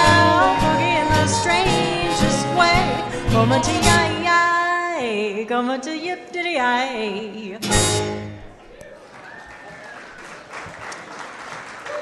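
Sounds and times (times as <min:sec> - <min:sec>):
upright bass: 0:00.0 - 0:04.3
woman singing: 0:00.0 - 0:07.9
guitar: 0:00.0 - 0:08.7.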